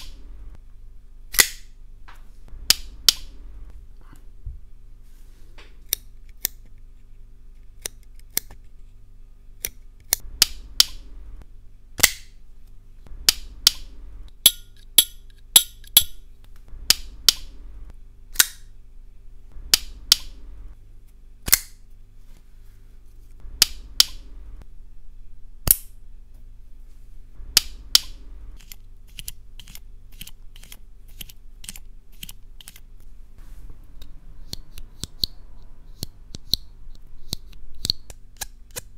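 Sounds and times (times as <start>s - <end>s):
pocket knives clicking open and shut: 18.4s - 18.7s.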